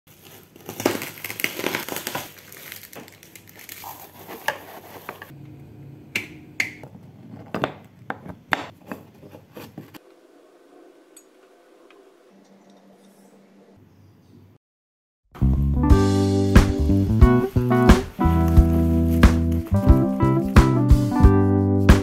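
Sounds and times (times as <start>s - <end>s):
plastic wrapping crinkling: 0.1s - 5.3s, 16.8s - 20.8s.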